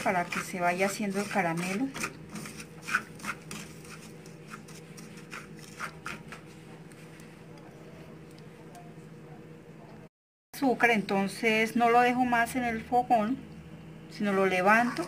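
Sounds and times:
wooden spatula scraping sugar: 0:00.0 - 0:07.6
faint steady hum: 0:02.0 - 0:15.0.

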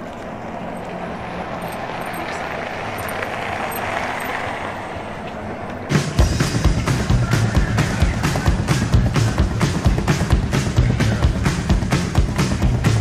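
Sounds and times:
traffic rumble: 0:00.0 - 0:13.0
rock music with drums and bass: 0:05.9 - 0:13.0.

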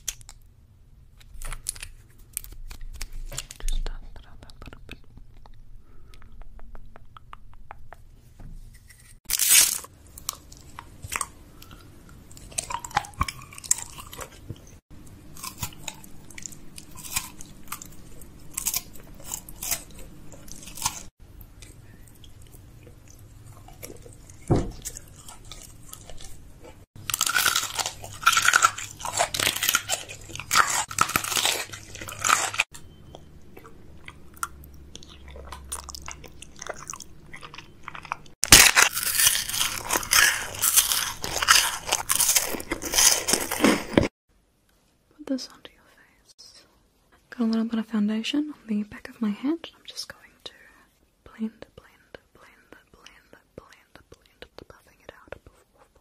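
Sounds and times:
crunchy snack chewing: 0:08.7 - 0:14.6, 0:15.2 - 0:44.1.

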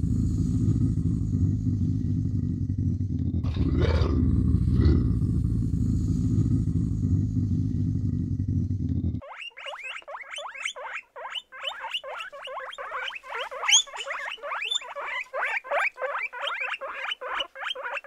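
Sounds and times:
guinea pigs squeaking: 0:09.2 - 0:18.0.

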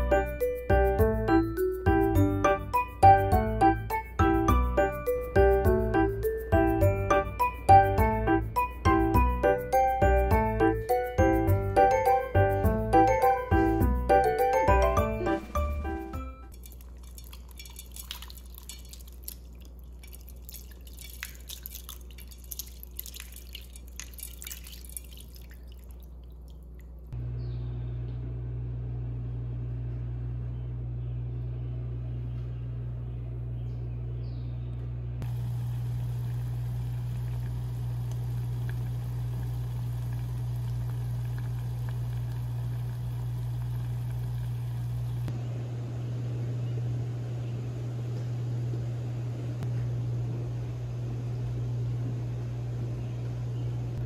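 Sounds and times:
steady low hum: 0:14.8 - 0:54.0
broth splashing into bowl: 0:16.5 - 0:27.1, 0:35.3 - 0:45.3
liquid dripping: 0:16.5 - 0:27.2, 0:35.2 - 0:45.3.

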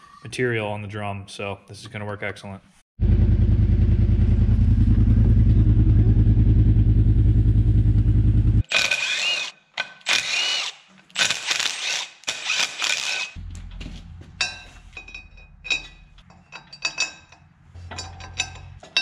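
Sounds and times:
pulsing engine-like rumble: 0:03.0 - 0:08.6
cordless impact driver bursts: 0:08.7 - 0:13.4.

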